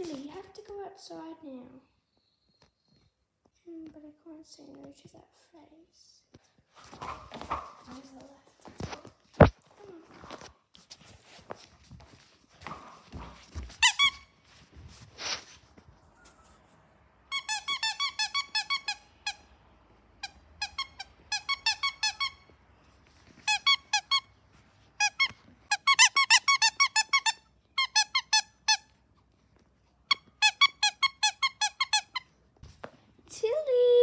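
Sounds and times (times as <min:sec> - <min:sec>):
dog toy squeaking: 0:13.7 - 0:14.3, 0:17.3 - 0:19.4, 0:20.2 - 0:22.5, 0:23.4 - 0:24.4, 0:25.0 - 0:29.0, 0:30.1 - 0:32.3.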